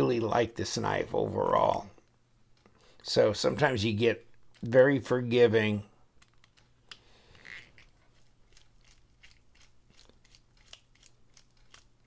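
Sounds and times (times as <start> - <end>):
screwdriver clicking on screw: 8.5 - 12.0.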